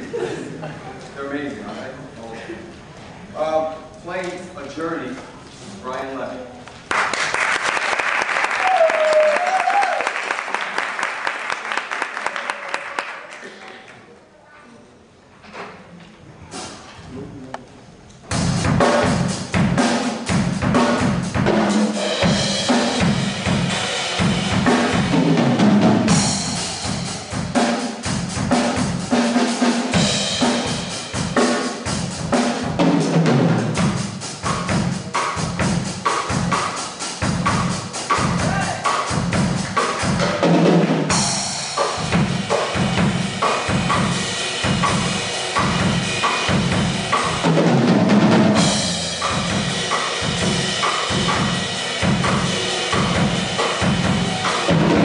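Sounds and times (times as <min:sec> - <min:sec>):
drum kit playing: 0:16.5 - 0:16.8, 0:18.2 - 0:55.0
cymbal crashes: 0:21.8 - 0:29.1.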